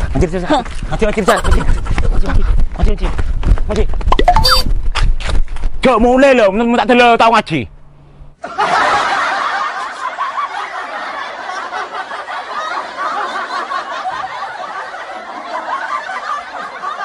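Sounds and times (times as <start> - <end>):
crowd laughing: 1.2 - 2.5, 8.4 - 17.0.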